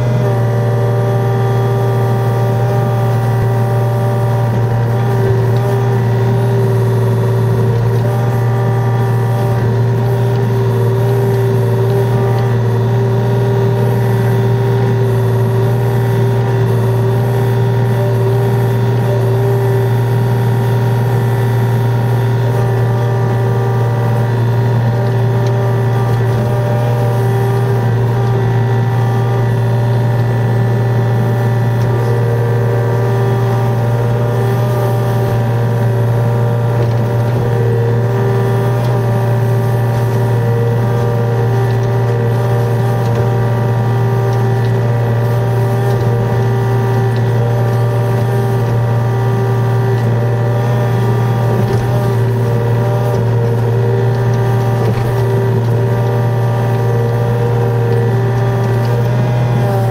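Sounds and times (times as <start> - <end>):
excavator diesel engine running: 0.0 - 59.9
hydraulics driving bucket digging: 0.0 - 59.9.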